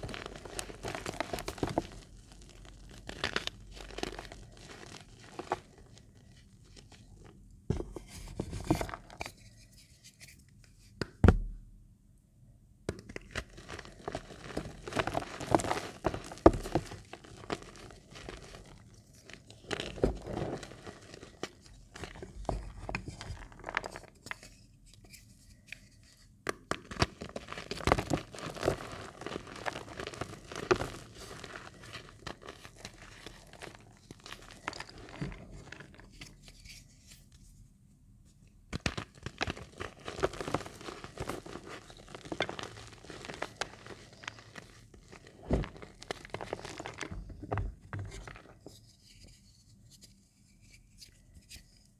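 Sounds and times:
hands crunching chalk: 38.7 - 47.1.

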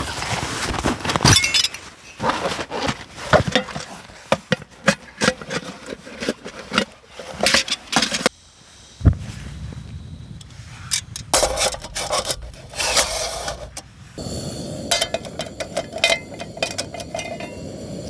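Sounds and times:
metal pots scraping and clattering: 1.4 - 8.3, 10.9 - 13.8, 14.9 - 17.8
gas burner rushing: 11.3 - 18.0.

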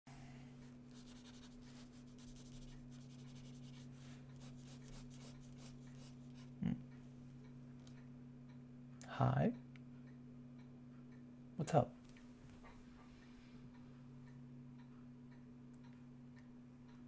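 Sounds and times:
steady low hum: 0.1 - 17.0
pencil scratching on paper: 0.9 - 6.6.

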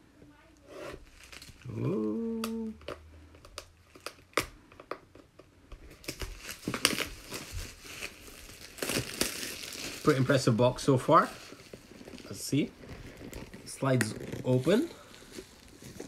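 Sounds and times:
cellophane wrap crinkling: 1.0 - 16.0
person humming: 1.6 - 2.9.

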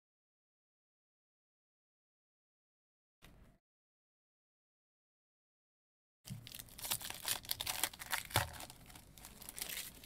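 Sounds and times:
foil wrapper tearing and crinkling: 6.3 - 10.0.

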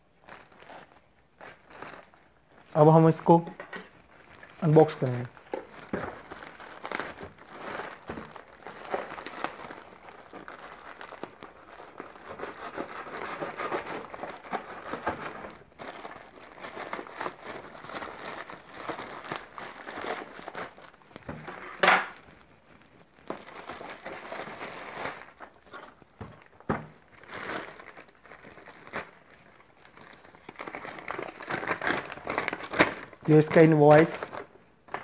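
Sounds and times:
plastic bag crinkling: 0.0 - 35.0
scissors cutting plastic: 11.5 - 15.6.

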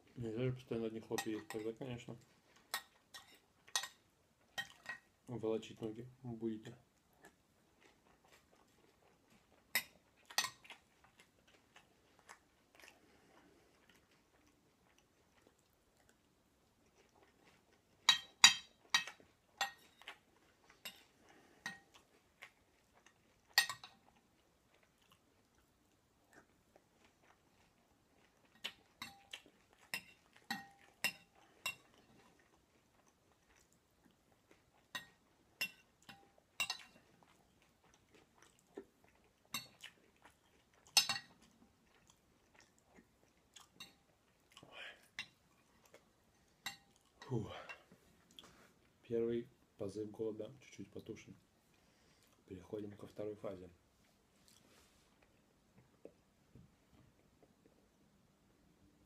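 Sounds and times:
faint chewing: 6.6 - 49.0, 51.0 - 58.2
spoon clinking on porcelain plate: 18.1 - 20.0, 23.6 - 24.0, 35.0 - 37.0.

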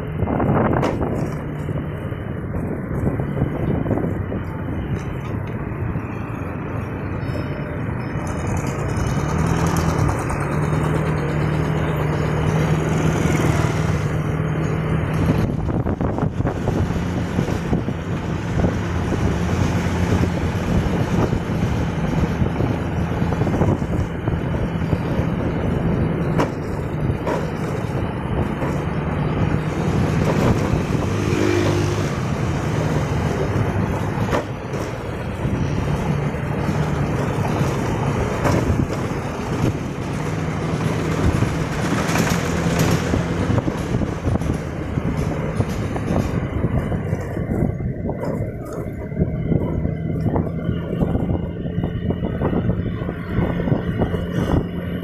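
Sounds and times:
road noise: 0.0 - 55.0
wind rushing: 15.0 - 27.2, 27.9 - 55.0.

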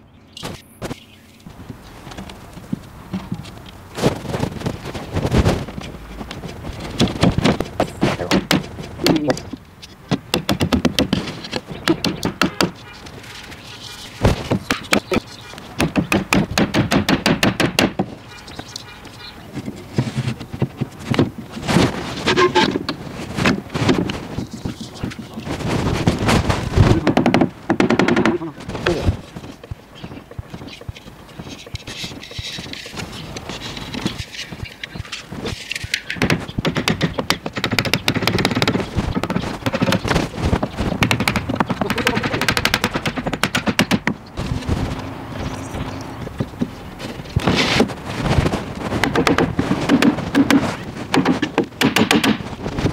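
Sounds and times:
wood scraping: 0.4 - 52.9
sharp wooden knocks: 2.1 - 45.0, 46.1 - 52.9
wooden knocks: 6.2 - 13.2, 26.7 - 33.0, 35.5 - 44.6.

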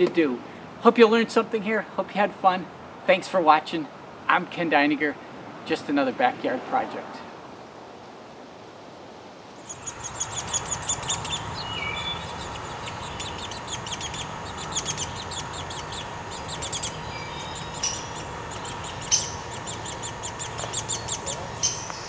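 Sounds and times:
low steady hum: 9.6 - 22.0
woodpeckers calling: 9.6 - 22.0.

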